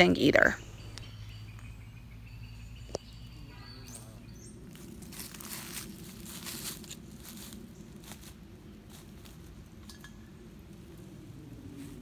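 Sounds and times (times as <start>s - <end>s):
steady low rumble: 0.0s - 12.0s
footsteps crunching dry leaves: 3.8s - 9.8s
twigs cracking: 4.7s - 10.0s.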